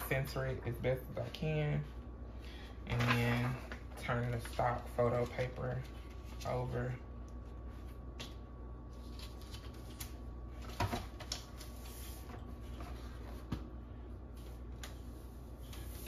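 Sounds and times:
paper rustling: 2.9 - 6.8, 7.7 - 13.7.

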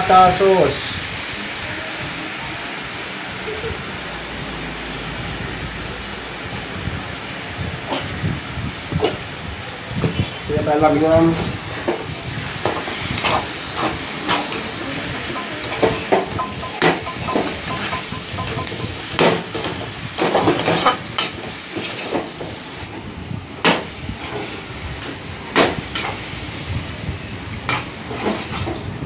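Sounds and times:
food sizzling: 0.0 - 29.0.

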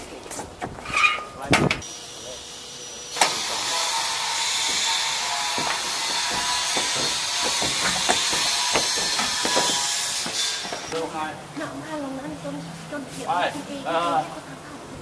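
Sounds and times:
footsteps on metal roof sheets: 3.9 - 11.1.

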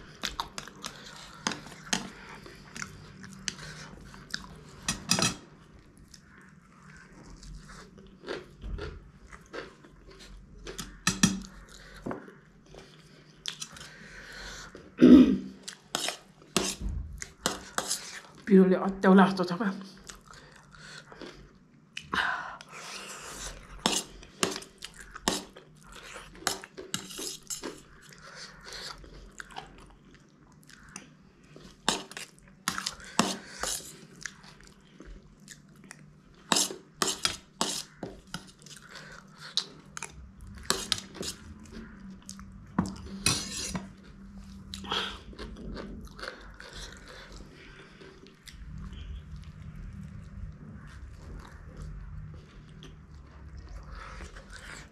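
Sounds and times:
chewing and crunching: 0.0 - 15.0, 19.9 - 54.9
metal spoon scraping steel plate: 4.8 - 5.4, 15.9 - 16.8, 43.2 - 43.9.

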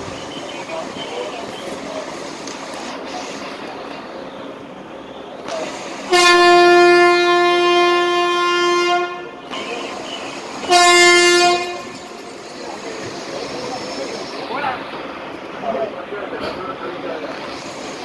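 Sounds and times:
train horn blasts: 6.1 - 9.5, 10.6 - 12.3.

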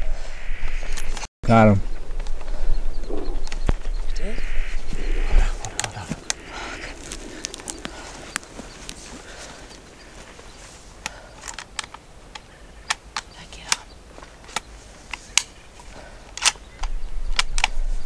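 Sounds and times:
low rumble of handling or wind: 0.0 - 18.0
sharp irregular clicks and taps: 11.0 - 15.5, 16.3 - 17.7.

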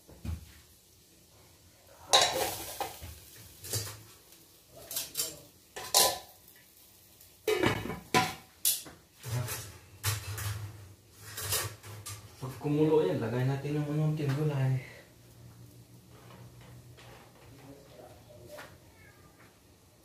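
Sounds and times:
metal lid on cooking pot: 2.1 - 3.0, 5.8 - 6.3
spoons clinking against metal bowls: 2.1 - 3.0, 4.9 - 6.3.

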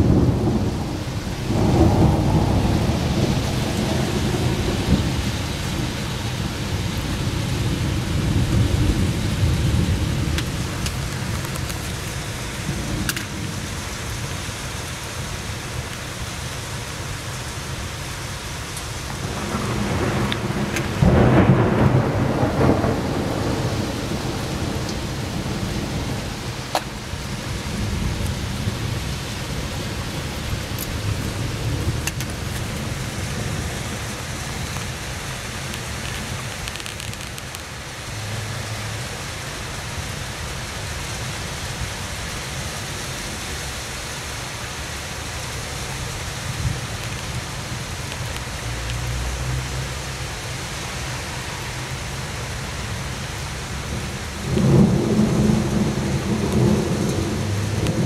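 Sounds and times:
thunder rumbling: 0.0 - 14.2, 19.1 - 37.6, 53.7 - 58.0
steady rain: 0.0 - 58.0.

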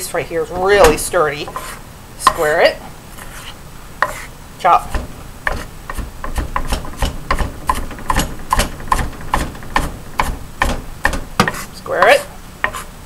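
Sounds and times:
knife chopping on wooden board: 4.9 - 12.9.

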